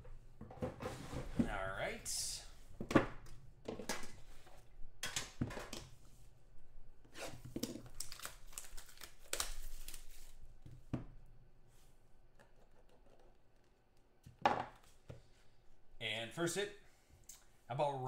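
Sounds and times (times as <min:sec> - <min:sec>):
packaging crinkling and tearing: 0:07.6 - 0:10.4.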